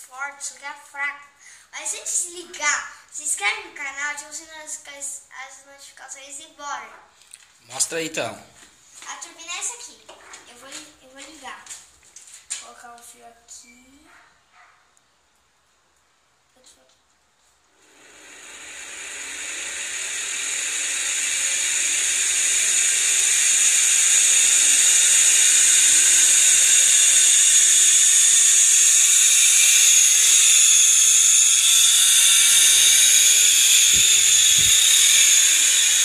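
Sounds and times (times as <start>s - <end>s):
small motor high-pitched whine: 17.7s - 36.0s.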